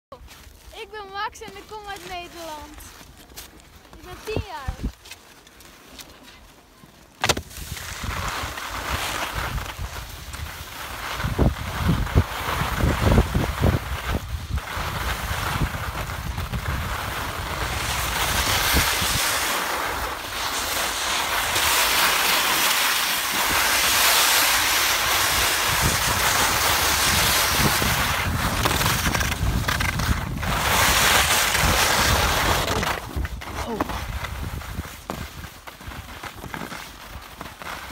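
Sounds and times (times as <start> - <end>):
skis sliding on hard snow: 0.2 - 37.9
wind buffeting microphone: 11.2 - 19.4, 25.2 - 35.5.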